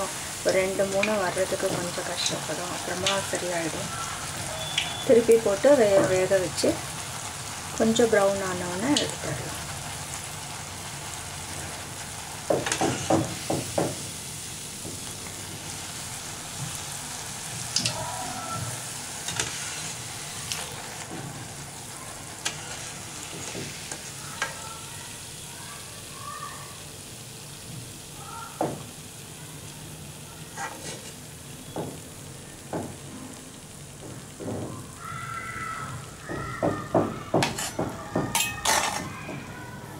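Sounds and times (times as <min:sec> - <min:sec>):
food sizzling in hot oil: 0:00.0 - 0:39.9
metal spoon clinking on pan: 0:37.5 - 0:39.1.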